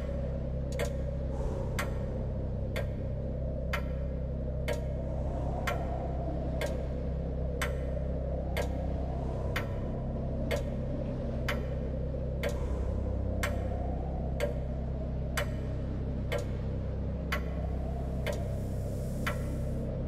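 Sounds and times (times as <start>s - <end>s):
steady low drone: 0.0s - 20.0s
sharp clock-like ticks: 0.6s - 2.0s, 3.6s - 5.0s, 6.6s - 6.9s, 7.5s - 10.8s, 11.4s - 15.6s, 16.2s - 16.7s, 17.3s - 19.8s.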